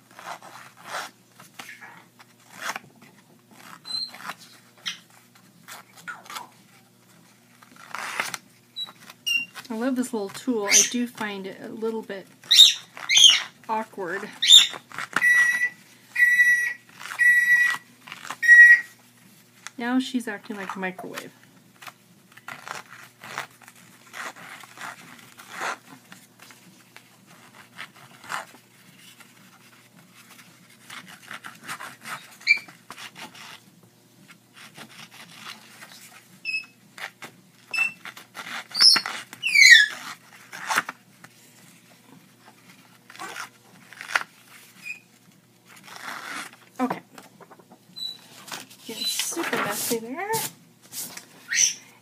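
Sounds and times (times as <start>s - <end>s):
bird beep-like whistles: 14.4s - 17.8s, 18.4s - 18.9s, 51.5s - 51.8s
falling bird whistles: 18.4s - 18.9s.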